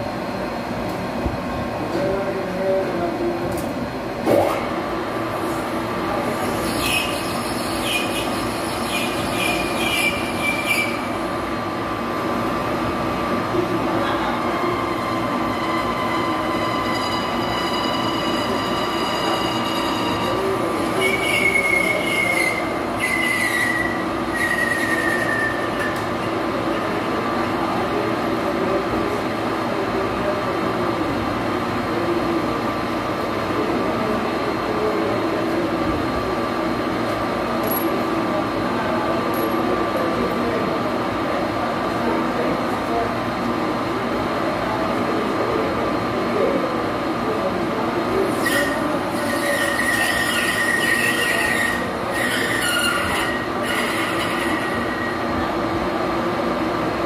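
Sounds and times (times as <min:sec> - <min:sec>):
cutting tool squealing: 0:21.0 - 0:26.0, 0:48.4 - 0:55.1.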